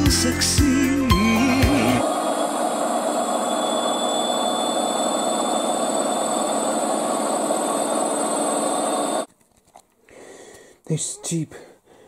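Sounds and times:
thin high whine: 1.4s - 9.3s.

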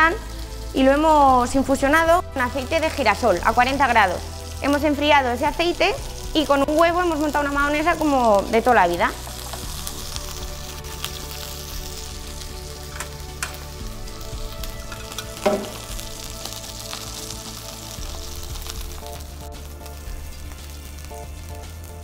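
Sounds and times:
fish sizzling in frying pan: 0.0s - 22.0s
soft background music: 0.0s - 22.0s
utensil clicks against pan: 12.9s - 13.6s.

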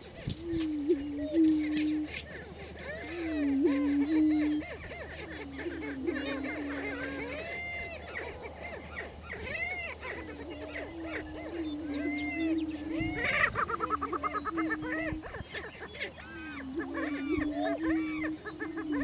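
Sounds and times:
birds booming low moans: 0.0s - 8.2s, 9.1s - 19.0s
short overlapping bird calls: 0.0s - 19.0s.

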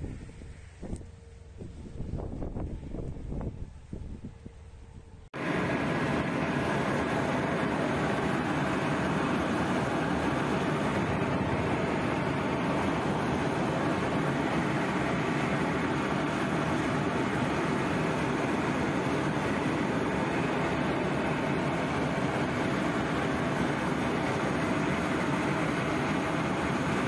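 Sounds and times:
aircraft engine noise in cabin: 0.0s - 27.0s.

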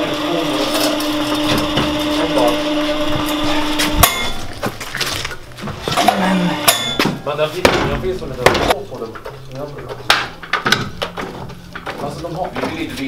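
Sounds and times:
mechanical hum with grinding: 0.0s - 13.0s
loud metallic clank: 3.5s - 4.6s.

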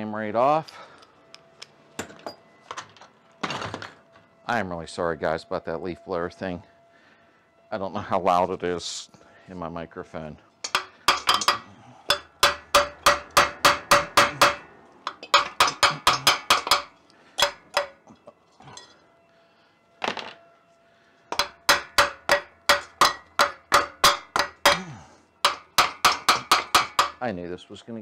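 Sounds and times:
hammer striking ringing metal: 10.6s - 19.0s, 21.3s - 27.2s.

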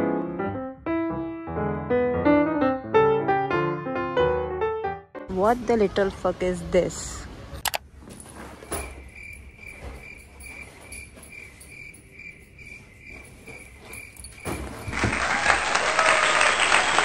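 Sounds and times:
cricket chirping: 8.4s - 15.0s.

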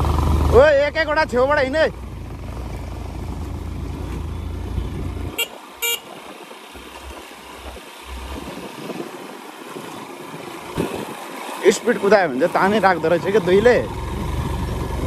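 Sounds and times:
motorcycle engine running: 0.0s - 15.0s
motorcycle horn toots: 4.3s - 6.2s.

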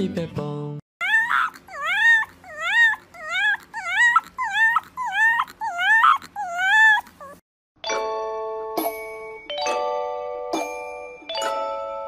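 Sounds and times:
puppy whimpering: 1.0s - 7.4s.

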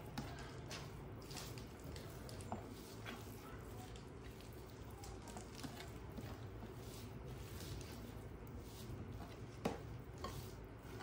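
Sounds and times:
hands squelching kneading food: 0.0s - 11.0s.

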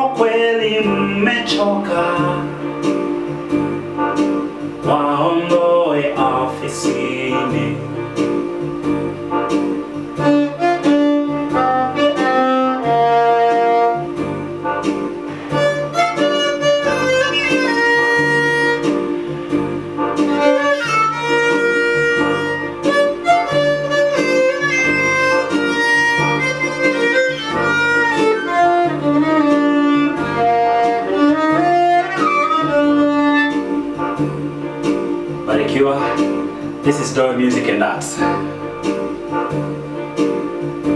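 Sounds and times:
low pulsing accompaniment: 0.0s - 40.9s
violin slow bowed melody: 10.1s - 14.2s, 15.4s - 34.5s.

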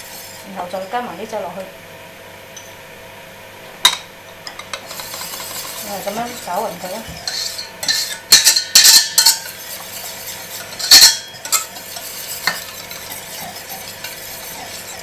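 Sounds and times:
whisk scraping and clinking metal bowl: 0.0s - 0.9s, 4.5s - 15.0s.

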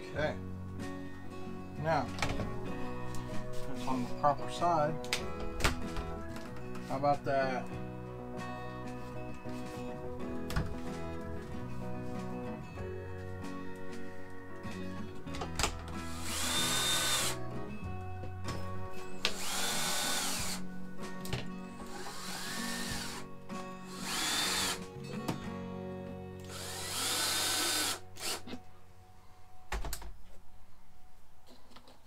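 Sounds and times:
background music: 0.0s - 32.0s
cordless drill whining: 16.0s - 17.4s, 19.2s - 20.6s, 21.8s - 24.8s, 26.4s - 28.6s.

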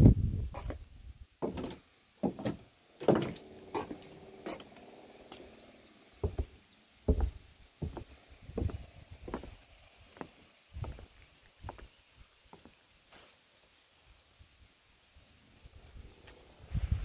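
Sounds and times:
footsteps on wood and stone: 0.6s - 5.5s, 6.2s - 12.8s.

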